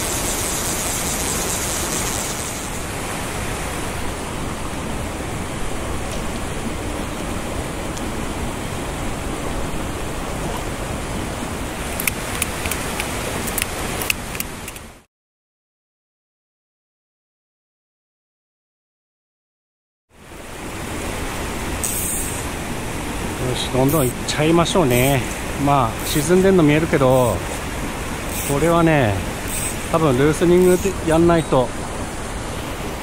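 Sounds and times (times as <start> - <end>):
stream water rushing: 0.0 - 15.1, 20.1 - 33.0
sharp clicks: 11.9 - 14.9.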